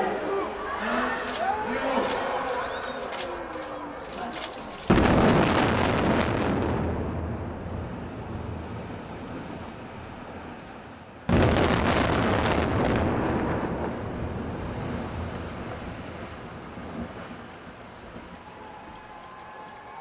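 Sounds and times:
demolition charges crackling: 0.0s - 20.0s
building collapse rumble: 4.6s - 20.0s.

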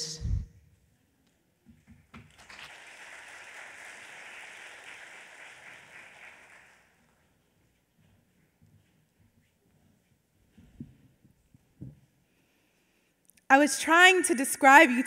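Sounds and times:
audience applauding: 2.3s - 7.2s.

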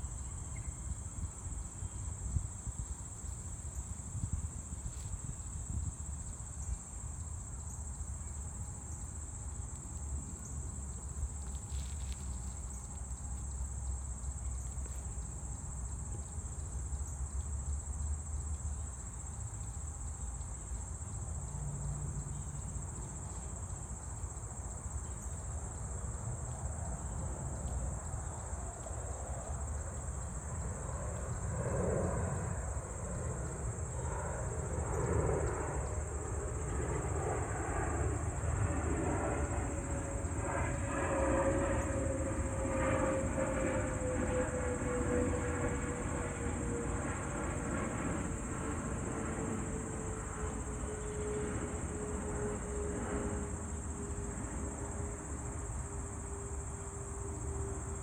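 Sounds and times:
insects chirping: 0.0s - 58.0s.

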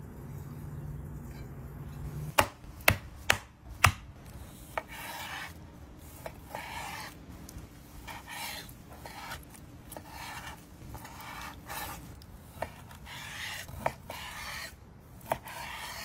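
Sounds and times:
knife slicing through meat: 4.4s - 7.2s, 8.0s - 16.0s.

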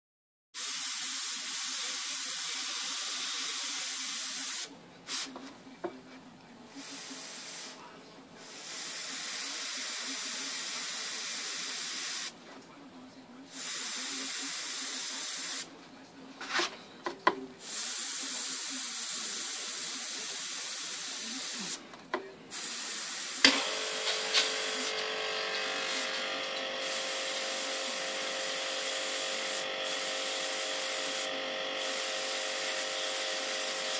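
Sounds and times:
airbrush hissing: 22.5s - 33.9s.

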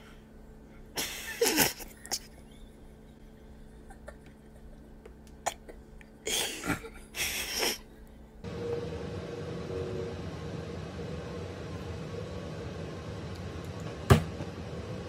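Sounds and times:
faint hum: 0.0s - 15.0s
room noise hiss: 0.0s - 15.0s
snorts of held-in laughter: 5.6s - 7.9s.

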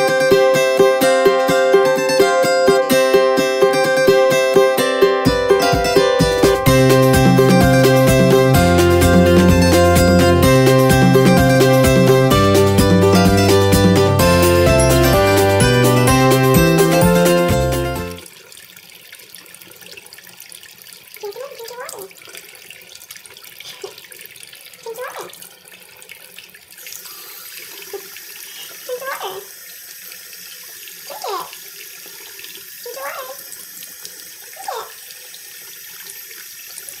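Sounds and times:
faucet water splashing into sink: 18.1s - 37.0s.

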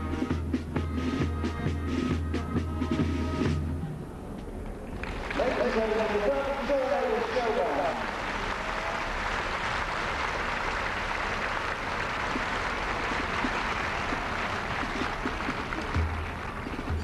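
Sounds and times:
crowd applauding: 5.0s - 17.0s.

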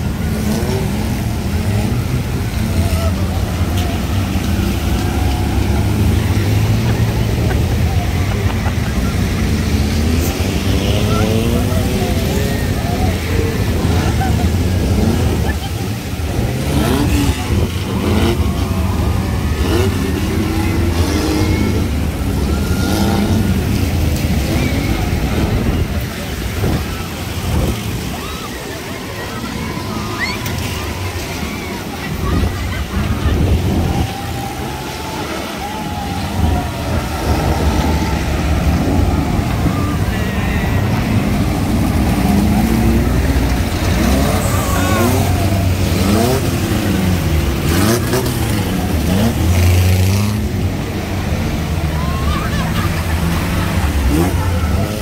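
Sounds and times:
jeep engines revving: 0.0s - 55.0s.

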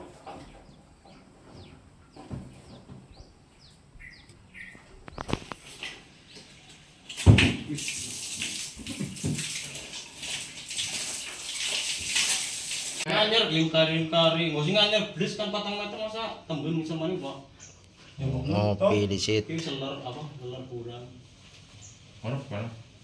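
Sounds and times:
small birds chirping: 0.0s - 7.0s, 17.4s - 18.3s, 21.7s - 22.2s
water rushing from pipe: 7.1s - 13.1s.

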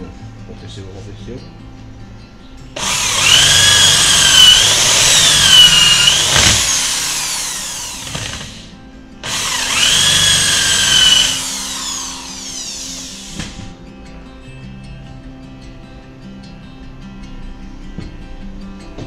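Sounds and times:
electric drill boring into wood: 2.8s - 13.7s.

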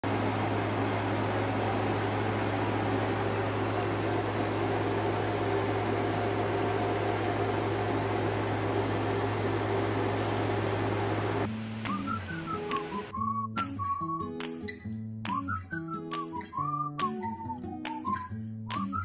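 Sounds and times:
fan motor humming: 0.0s - 13.1s.

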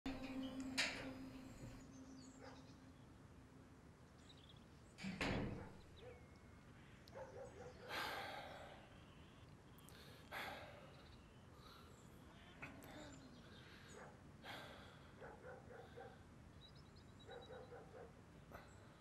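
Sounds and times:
wooden door thudding shut: 5.0s - 5.8s.

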